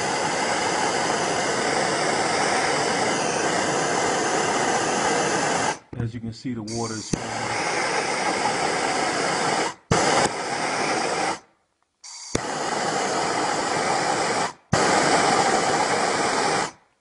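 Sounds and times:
blowtorch flame hissing: 0.0s - 5.9s, 6.7s - 16.8s.

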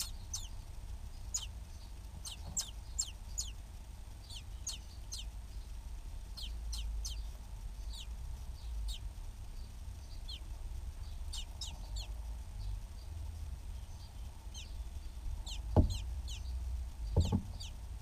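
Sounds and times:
nestling begging squeaks: 0.0s - 0.5s, 2.2s - 3.5s.

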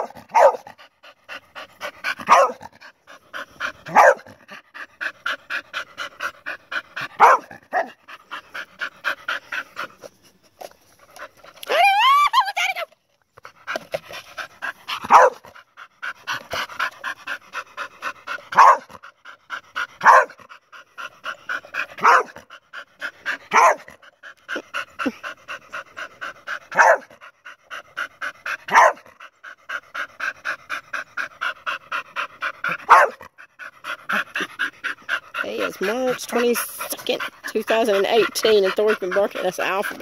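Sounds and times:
dog barking: 0.0s - 0.7s, 2.3s - 2.6s, 3.9s - 4.3s, 7.2s - 7.9s, 15.1s - 15.4s, 18.6s - 18.9s, 20.0s - 20.4s, 22.0s - 22.4s, 23.5s - 23.9s, 26.7s - 27.1s, 28.7s - 29.0s, 32.9s - 33.2s
dog panting: 0.0s - 11.7s, 13.4s - 40.0s.

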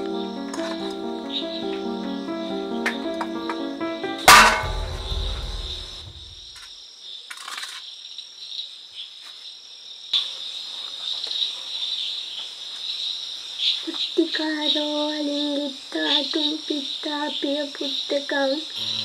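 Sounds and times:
crickets chirring: 0.0s - 19.0s
deep boom hit: 4.1s - 6.5s.

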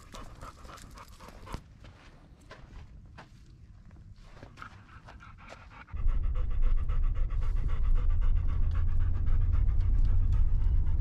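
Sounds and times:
dog panting rapidly: 0.0s - 1.6s, 4.3s - 11.0s
loud steady low rumble: 6.0s - 11.0s.

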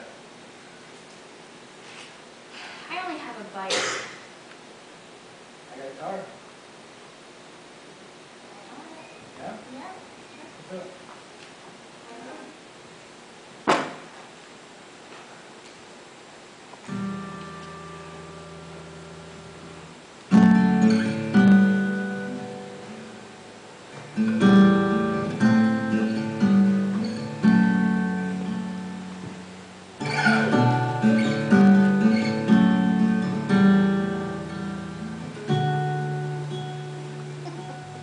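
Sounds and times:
acoustic guitar chords: 16.8s - 38.0s.

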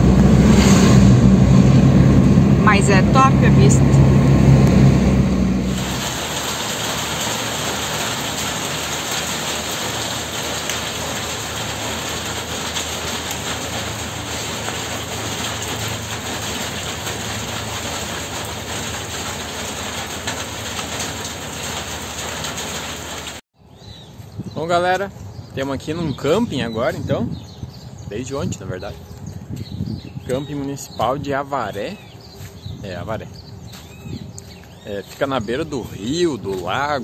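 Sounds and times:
steady rain: 5.6s - 23.4s.

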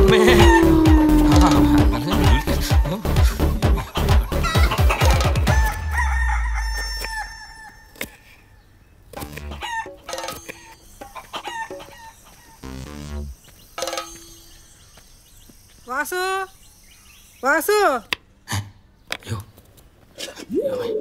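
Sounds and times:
chicken squawking and clucking: 0.0s - 3.2s, 3.8s - 8.0s, 9.5s - 9.9s
low rhythmic thuds: 0.0s - 6.5s.

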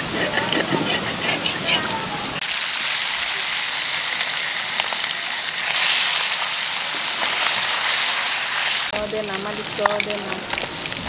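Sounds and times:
fish frying in hot oil: 0.0s - 11.0s.

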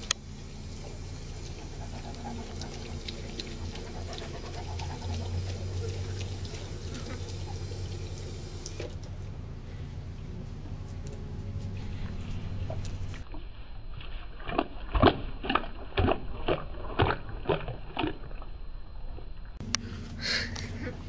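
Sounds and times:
water running from fountain: 0.0s - 9.1s
steady low rumble: 0.0s - 14.4s
dog drinking: 0.6s - 9.0s.

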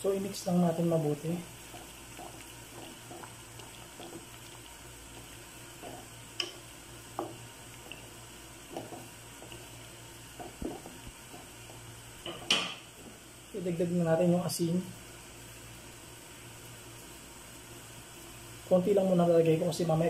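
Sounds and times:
faint steady hum: 0.0s - 20.0s
sauce simmering in a pan: 0.1s - 13.6s, 14.9s - 19.7s
wooden spatula stirring: 0.2s - 13.2s
spatula knocking against pan: 5.8s - 7.4s, 10.3s - 12.8s.

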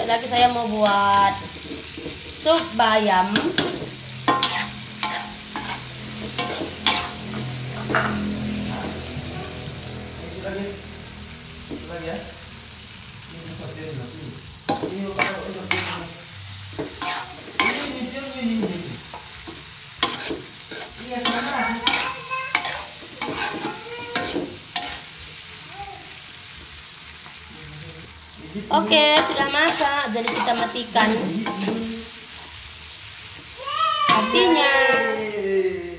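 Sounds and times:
food sizzling: 0.0s - 35.9s
metal spatula scraping a wok: 0.8s - 9.1s, 14.6s - 25.3s, 28.7s - 32.7s.

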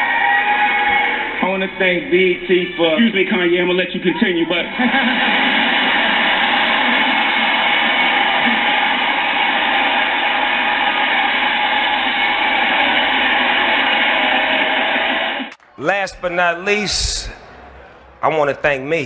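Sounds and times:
crowd cheering and applauding: 0.0s - 1.4s, 3.7s - 19.0s.

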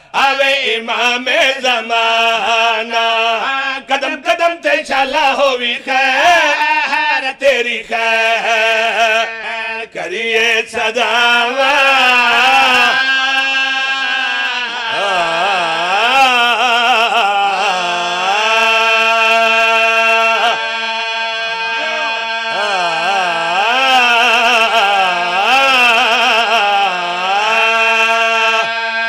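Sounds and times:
man singing into microphone: 0.0s - 29.0s
male voice holding drone note: 21.5s - 22.6s.

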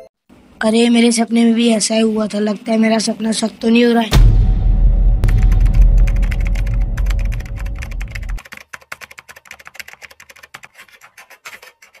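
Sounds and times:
deep low drone: 4.3s - 8.4s
keyboard keys clicking: 6.0s - 12.0s.

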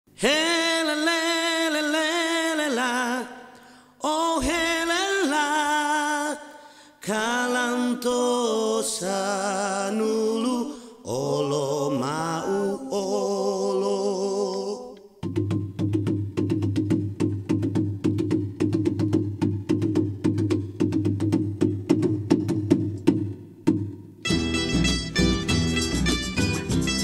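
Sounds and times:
person singing unaccompanied: 0.1s - 15.3s.

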